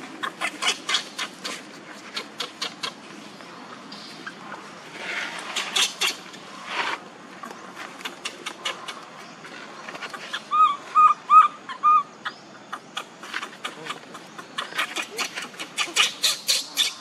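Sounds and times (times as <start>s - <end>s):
baby monkey squealing cries: 0.2s - 1.6s, 10.3s - 12.1s, 14.6s - 17.0s.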